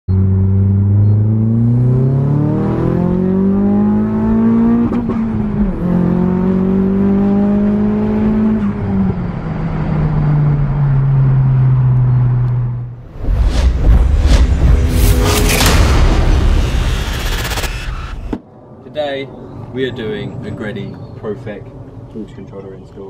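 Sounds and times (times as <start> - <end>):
car engine accelerating: 0.1 - 18.4.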